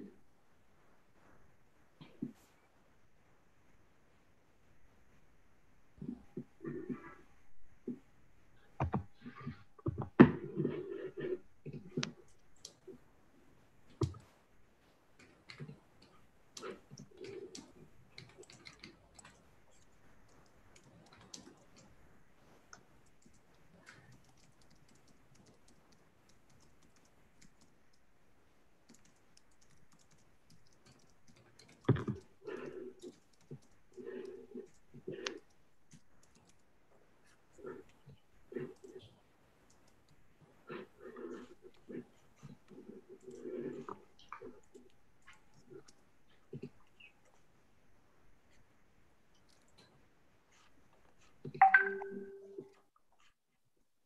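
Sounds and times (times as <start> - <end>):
keyboard typing and clicking: 15.2 - 21.9, 23.0 - 28.1, 28.8 - 36.7, 51.5 - 52.6.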